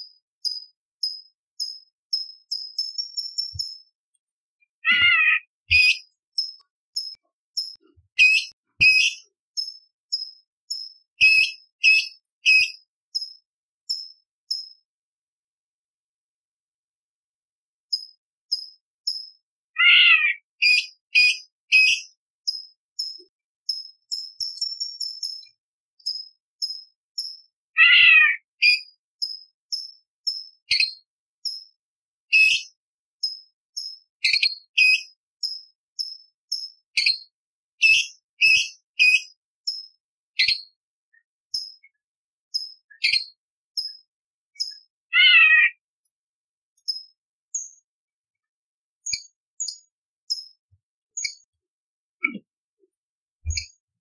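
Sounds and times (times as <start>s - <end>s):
bird singing whistled notes: 0.0s - 3.9s, 4.9s - 14.8s, 17.9s - 31.6s, 32.3s - 40.8s, 41.6s - 45.6s
bird downward-slurred call: 4.9s - 6.0s, 19.8s - 20.4s, 27.8s - 28.4s, 45.2s - 45.8s.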